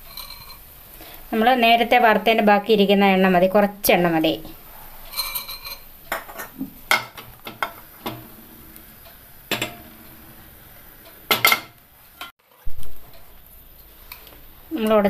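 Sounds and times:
frying pan clinking on metal grate: 0:09.1 - 0:10.2, 0:11.1 - 0:12.3.

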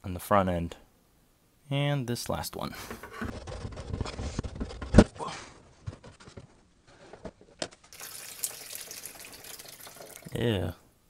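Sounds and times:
water pouring into basin: 0:07.9 - 0:10.5.

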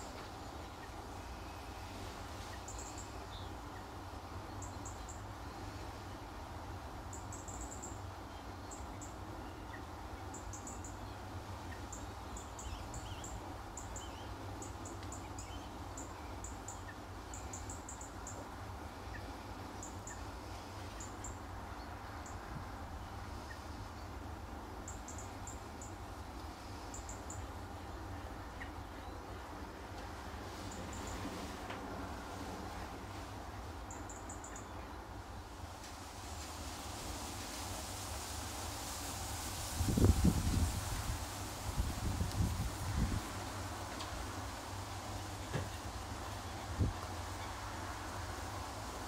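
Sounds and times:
small birds calling: 0:07.1 - 0:24.2.

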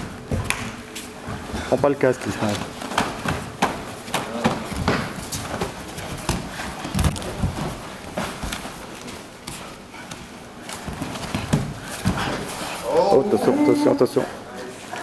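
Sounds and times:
bodies thudding on mats: 0:02.5 - 0:12.8.

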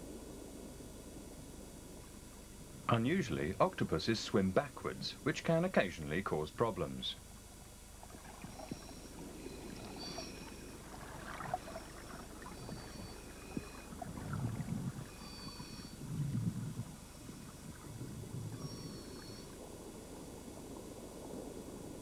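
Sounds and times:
low swishing water surges: 0:00.0 - 0:22.0
underwater water ambience: 0:00.0 - 0:22.0
faint high tones: 0:08.0 - 0:21.1.

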